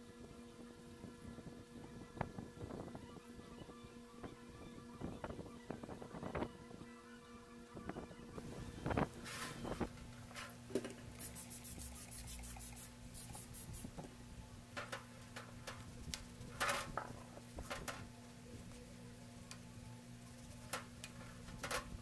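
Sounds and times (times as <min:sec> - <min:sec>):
stiff brush scrubbing metal: 0:11.2 - 0:14.0.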